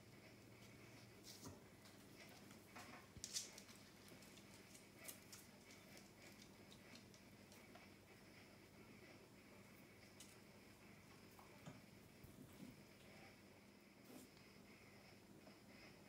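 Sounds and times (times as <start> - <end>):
faint rustles and clicks: 0.3 - 8.0.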